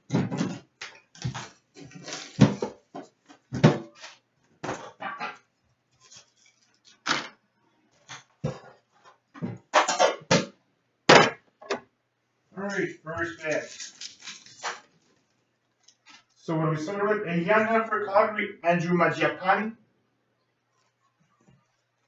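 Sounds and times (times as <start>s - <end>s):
plastic wrap crinkling: 13.4s - 16.4s.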